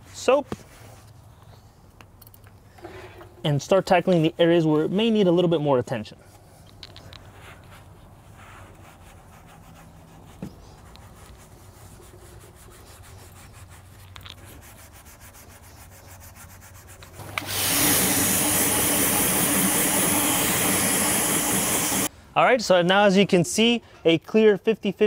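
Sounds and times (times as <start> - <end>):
sponge rubbing metal: 8.6 - 17.2
water spray hissing: 17.1 - 22.1.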